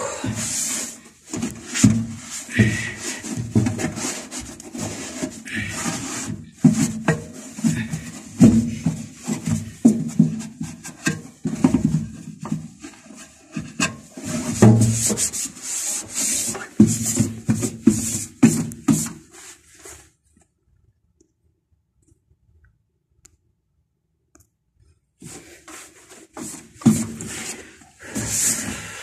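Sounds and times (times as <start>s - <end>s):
cloth rag scrubbing metal: 0.1s - 20.0s, 25.2s - 29.0s.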